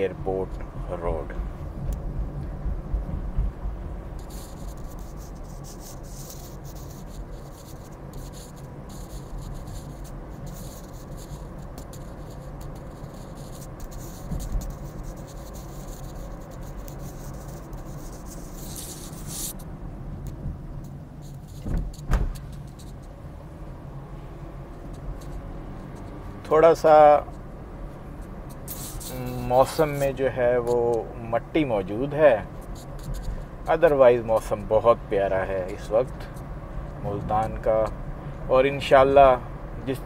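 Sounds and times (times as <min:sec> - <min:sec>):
car road and engine noise: 0:00.0 - 0:40.0
thumps: 0:21.6 - 0:22.9.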